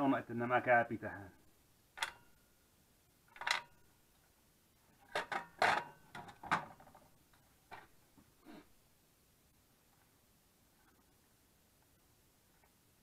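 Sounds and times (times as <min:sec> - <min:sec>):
metal parts clicking on workbench: 0:03.3 - 0:03.8.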